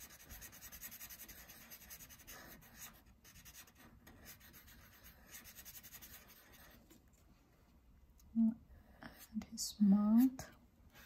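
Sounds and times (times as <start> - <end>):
marker scratching on paper: 0.0 - 7.0.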